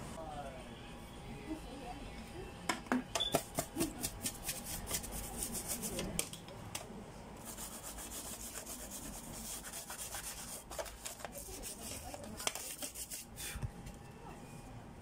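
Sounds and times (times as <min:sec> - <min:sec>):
toothbrush scrubbing plastic: 0:03.8 - 0:06.2, 0:07.4 - 0:13.4.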